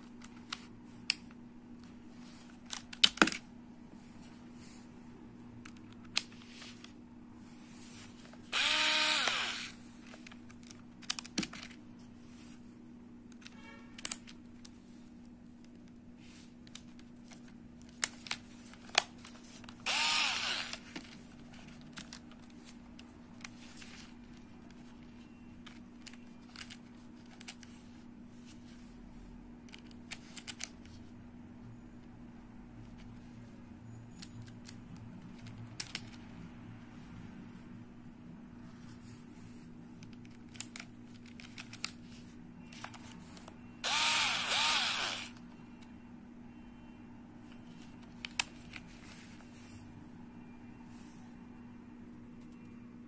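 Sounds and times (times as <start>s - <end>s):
electric screwdriver motor whirr: 8.5s - 9.8s, 19.8s - 20.8s, 43.8s - 45.4s.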